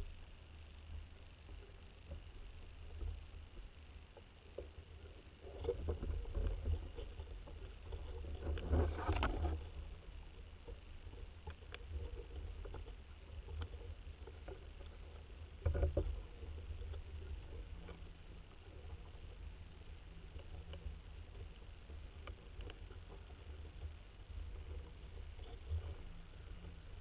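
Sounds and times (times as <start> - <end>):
underwater low rumble: 0.0 - 27.0
water crackling and sloshing: 1.5 - 27.0.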